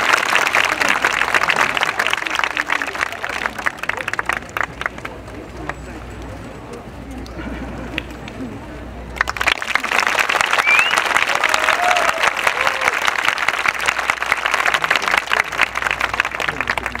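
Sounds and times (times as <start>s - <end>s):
audience applauding: 0.0s - 6.0s, 9.2s - 17.0s
rising whistle: 10.6s - 11.1s.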